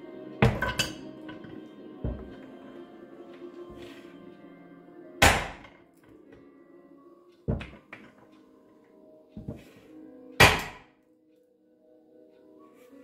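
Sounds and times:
soft background music: 0.0 - 13.0.

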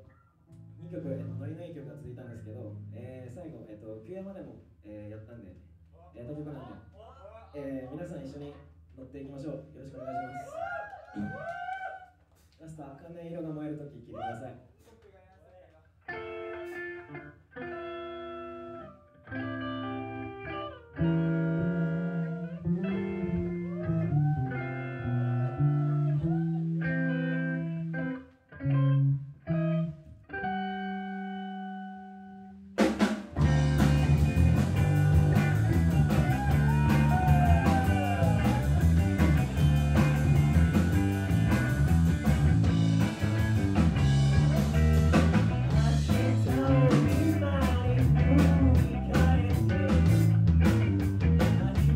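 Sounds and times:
rock band playing: 16.1 - 32.0, 32.8 - 51.9
electric guitar chords: 16.1 - 51.9.

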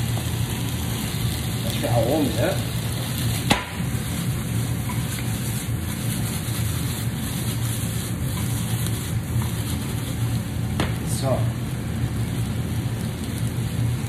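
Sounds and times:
pasta sizzling in pan: 0.0 - 14.0.

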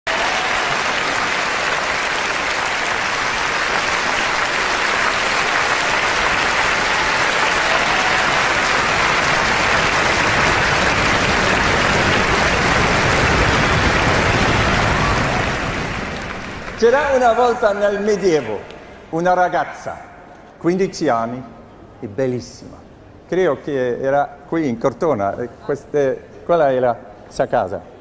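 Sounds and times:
audience applauding: 0.0 - 18.5.

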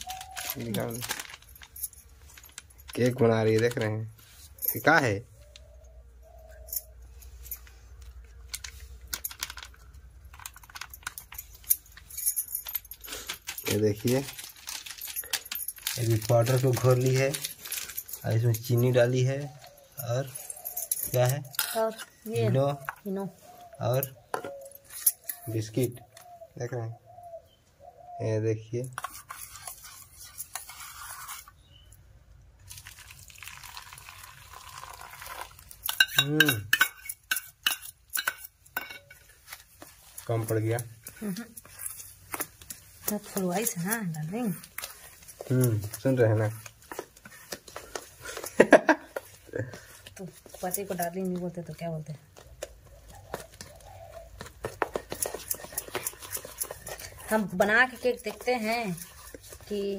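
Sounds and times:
glass bangles clinking: 0.0 - 26.4, 32.7 - 59.9
metal spoon scraping steel bowl: 18.8 - 23.0, 29.0 - 31.9, 35.8 - 42.1, 55.1 - 59.9
liquid pouring: 32.7 - 35.8.

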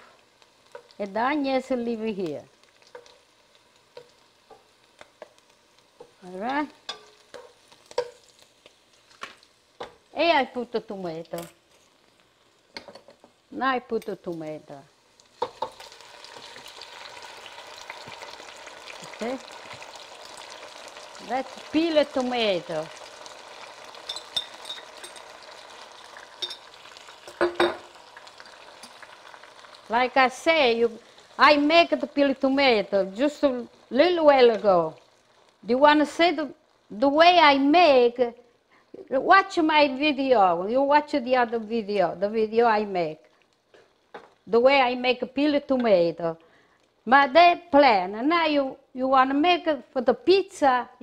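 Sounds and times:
onion frying in oil: 0.0 - 51.0
spoon knocking and scraping pan: 2.9 - 3.2, 3.9 - 5.4, 6.0 - 8.2, 9.2 - 10.0, 12.7 - 13.4, 15.4 - 15.8, 24.0 - 25.4, 26.4 - 28.0.

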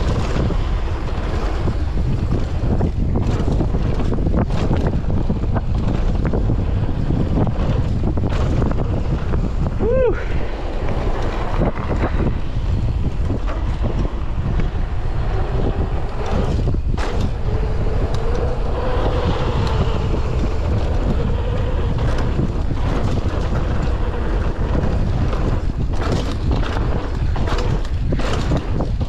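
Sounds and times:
bike knocks: 0.0 - 9.8, 15.7 - 29.0
tyre rumble: 0.0 - 29.0
wind buffeting microphone: 0.0 - 29.0.

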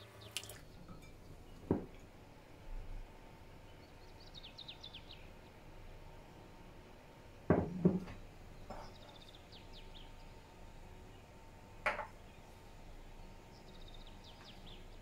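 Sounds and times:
glass jug knocking on wood: 7.5 - 8.2.

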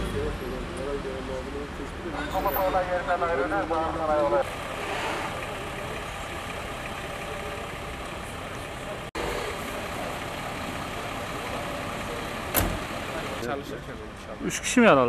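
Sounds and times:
diesel engine idling: 0.1 - 15.0
sharp thump: 12.5 - 12.9.

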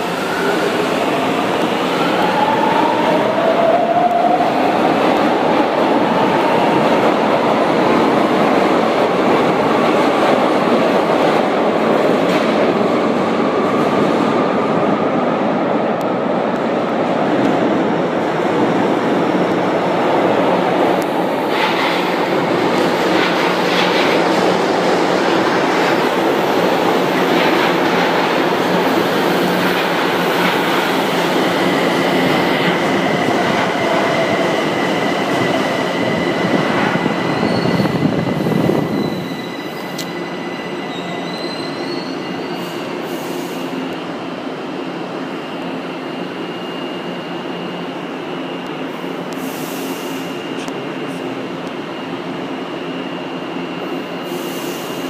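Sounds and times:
train wheels rumbling on rails: 0.0 - 43.9
high brake squeal: 37.2 - 43.8.

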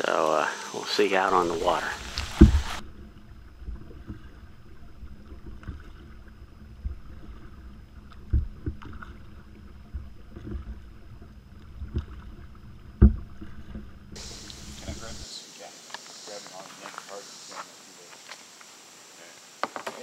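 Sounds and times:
paddle dipping in water: 1.1 - 15.2
dull knocks: 2.1 - 2.8, 8.2 - 9.0, 12.9 - 15.2.

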